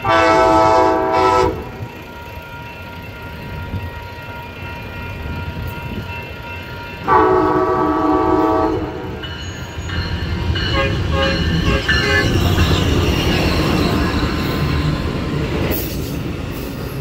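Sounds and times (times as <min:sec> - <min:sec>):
train air horn blast: 0:00.0 - 0:01.8, 0:07.1 - 0:09.2
diesel locomotive rumbling: 0:00.0 - 0:17.0.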